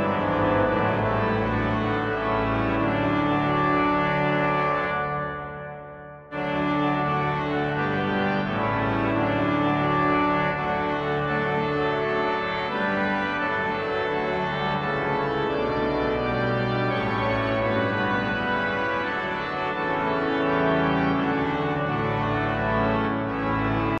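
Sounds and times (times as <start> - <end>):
church organ playing chords: 0.0 - 24.0.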